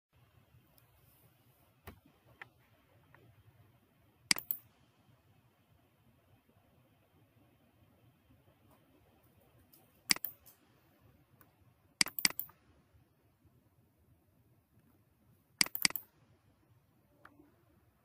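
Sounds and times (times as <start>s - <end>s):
computer mouse clicking: 4.3s - 4.7s, 9.7s - 10.6s, 12.0s - 12.6s, 15.6s - 16.2s.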